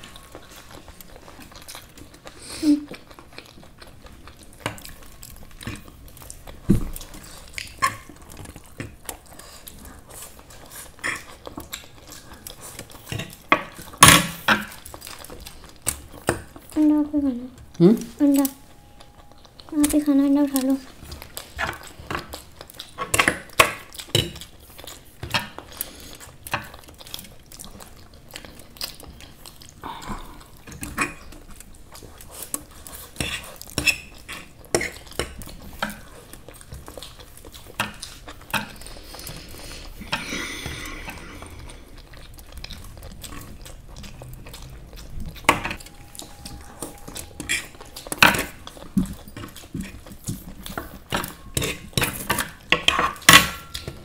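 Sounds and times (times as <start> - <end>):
cutlery clinking and scraping on plates: 50.8 - 54.0.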